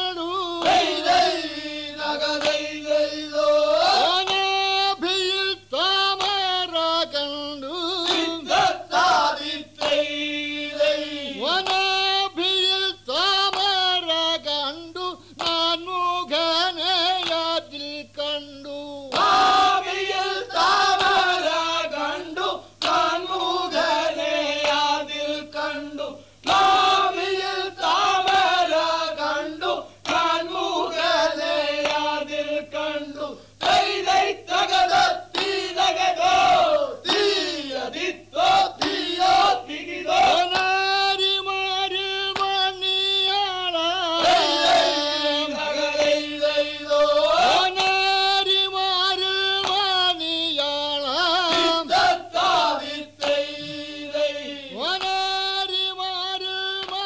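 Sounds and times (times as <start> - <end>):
group chanting in unison: 0.0 - 5.3, 7.8 - 12.0, 19.1 - 43.3, 44.0 - 50.0, 51.2 - 57.0.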